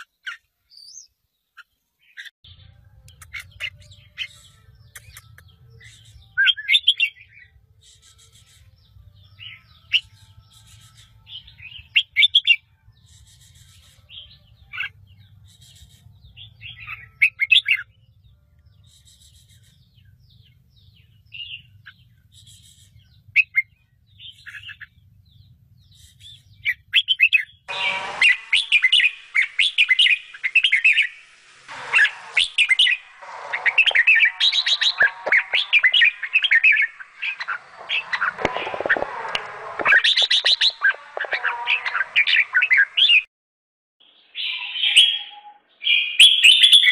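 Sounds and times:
nestlings chirping: 25.9 - 43.0
nestlings begging calls: 26.0 - 43.2.

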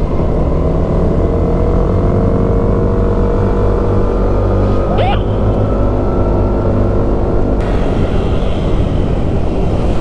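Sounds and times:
wind rush on microphone: 4.2 - 10.0.

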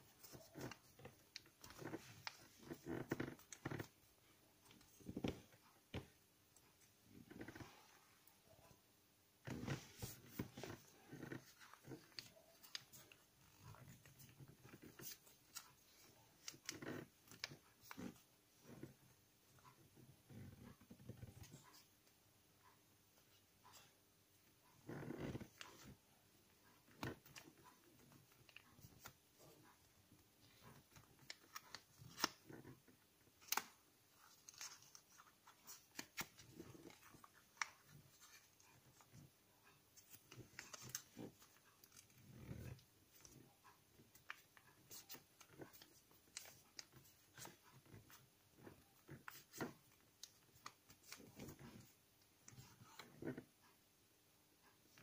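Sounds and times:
paper being folded by hand: 0.0 - 6.1, 9.4 - 18.7, 26.6 - 53.5.

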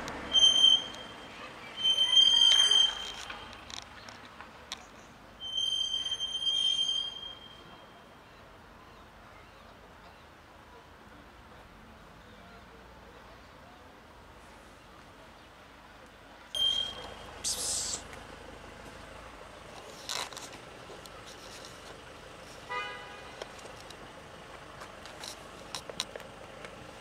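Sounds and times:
high-pitched squeals: 0.3 - 3.7, 5.4 - 7.9, 16.6 - 18.0.

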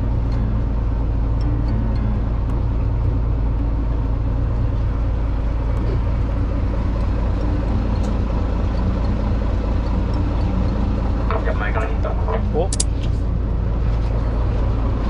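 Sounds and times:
boat engine rumbling: 0.0 - 15.0.

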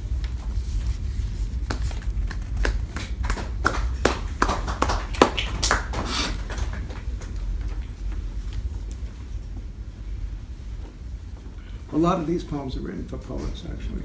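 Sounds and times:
paper rustling and shuffling: 0.2 - 3.2.

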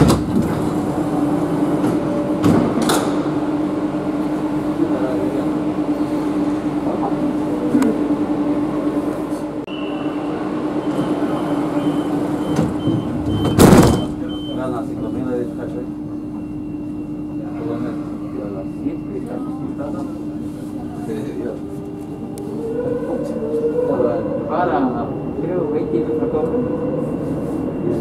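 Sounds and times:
train low hum: 0.0 - 28.0
door-closing warning beeps: 10.8 - 15.2.

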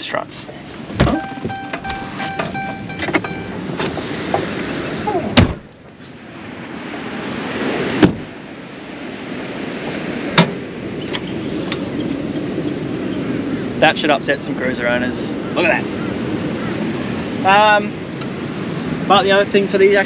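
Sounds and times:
car bonnet clicks and knocks: 0.9 - 4.6, 10.4 - 10.6
door-open chime beeping: 1.1 - 3.7.

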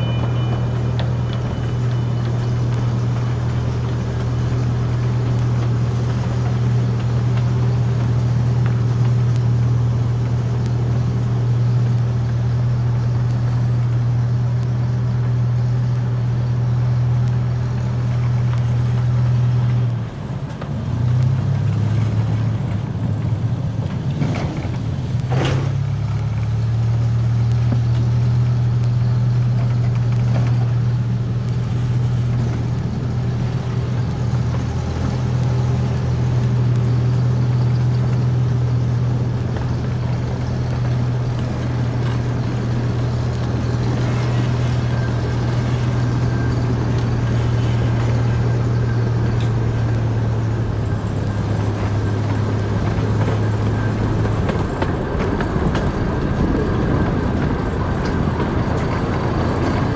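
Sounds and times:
miniature train engine humming: 0.0 - 59.9.

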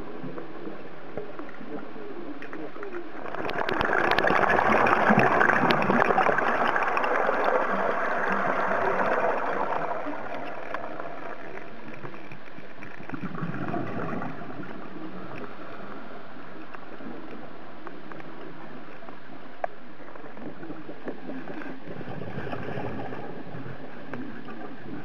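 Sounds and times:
air bubbling underwater: 3.2 - 12.4, 13.1 - 15.8.

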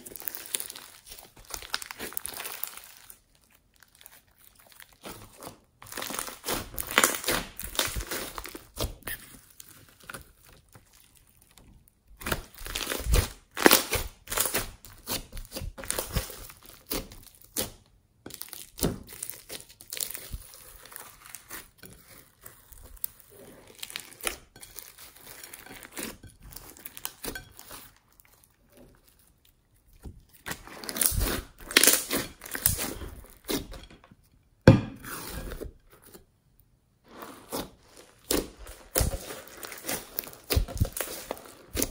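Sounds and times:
hands squeezing beaded slime: 0.0 - 5.1.

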